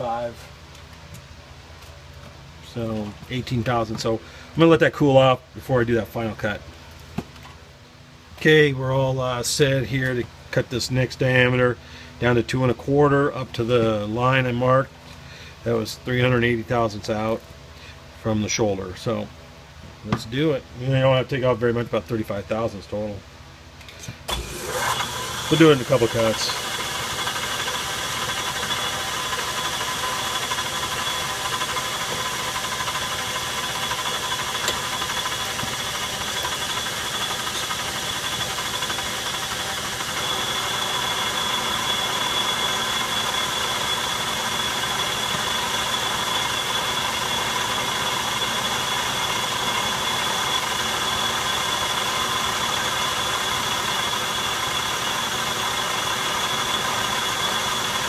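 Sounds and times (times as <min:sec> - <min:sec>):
metal lathe whining: 0:24.3 - 0:58.0.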